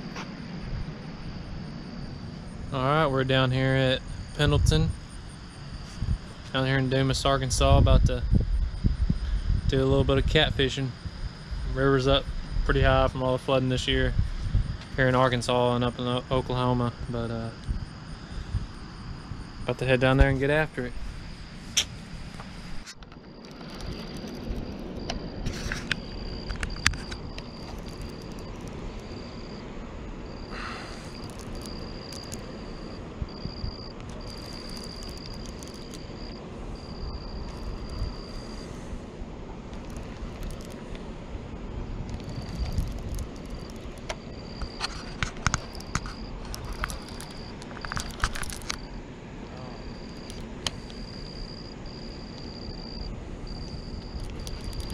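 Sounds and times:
low outdoor rumble: 0.0s - 54.9s
insect trilling: 0.8s - 54.9s
sharp clicks: 31.0s - 32.5s, 33.9s - 36.4s, 39.7s - 41.1s, 42.1s - 48.9s, 54.0s - 54.9s.

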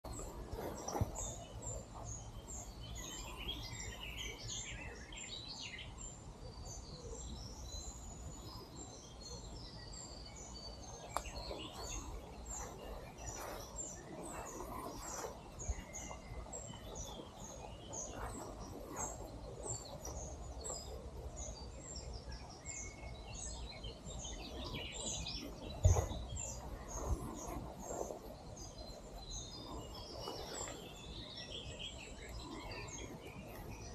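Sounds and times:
birds chirping: 0.0s - 33.9s.

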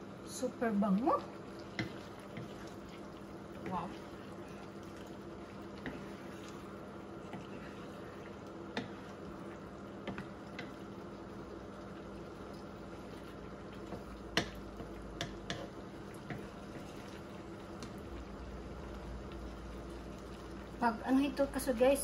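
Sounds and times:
sauce bubbling in a pan: 0.0s - 22.0s
spatula knocking against pan: 13.9s - 16.4s.

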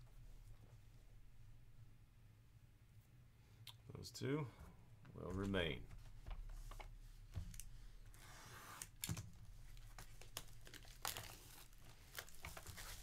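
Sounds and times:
shrink wrap crinkling and tearing: 8.6s - 13.0s.

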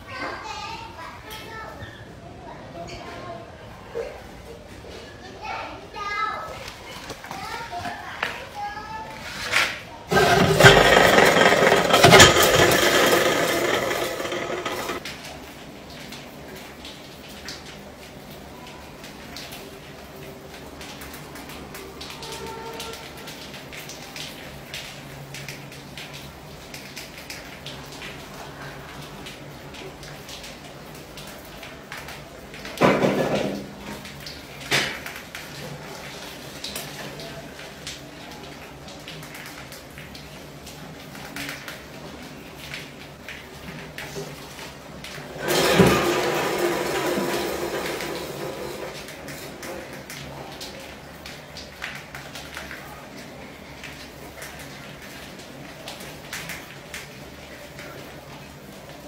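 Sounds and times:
beer cans rattling together: 10.1s - 15.0s.

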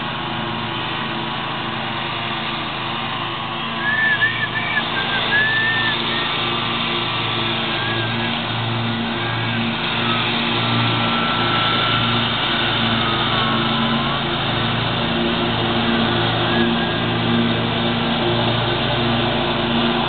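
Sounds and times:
engine humming with slow throb: 0.0s - 20.0s.

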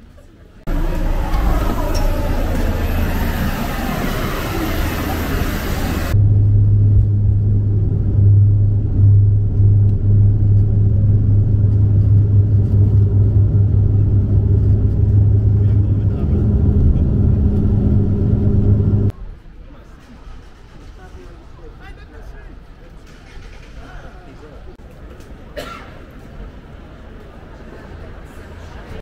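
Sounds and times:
loud traffic noise: 0.7s - 19.1s
low engine drone: 0.7s - 19.1s.

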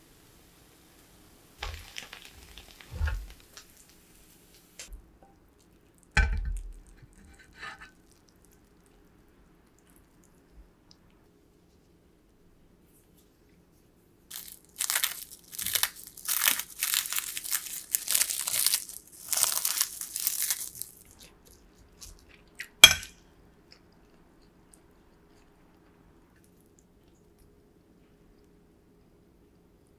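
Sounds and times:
seaweed sheets crunching: 1.6s - 4.0s, 14.3s - 22.4s.

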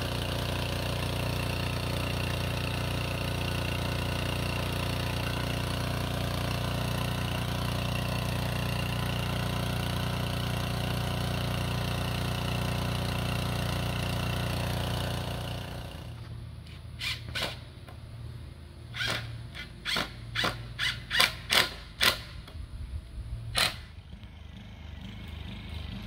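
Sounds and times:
small gasoline engine running: 0.0s - 16.4s, 23.4s - 26.0s.

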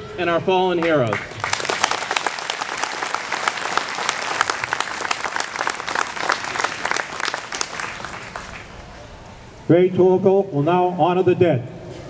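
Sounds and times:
audience applauding: 0.8s - 9.0s.

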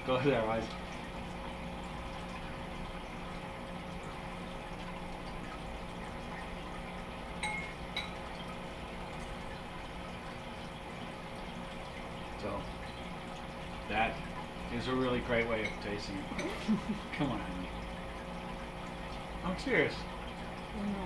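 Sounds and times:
aquarium filter trickling: 0.0s - 21.0s
steady hum: 0.0s - 21.0s
cutlery clinking on a bowl: 15.6s - 16.6s.

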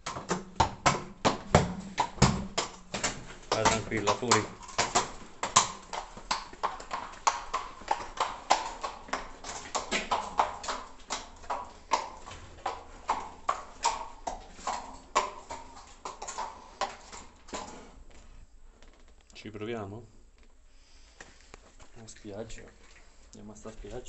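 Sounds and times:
horse hooves clip-clopping on stone: 0.0s - 18.3s.

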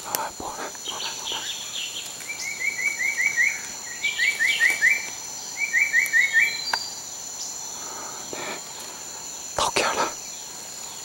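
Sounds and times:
forest insects droning: 0.0s - 11.0s.

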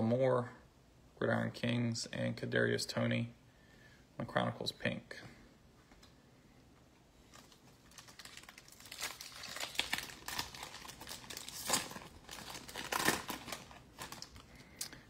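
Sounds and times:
foil wrapper crinkling: 7.3s - 14.9s.

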